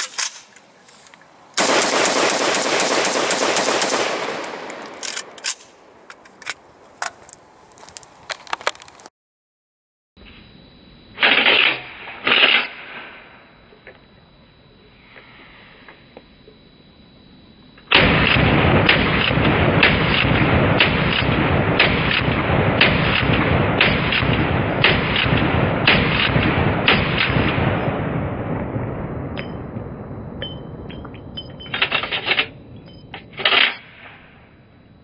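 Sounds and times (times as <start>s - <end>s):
pistol shots: 1.6s - 5.9s.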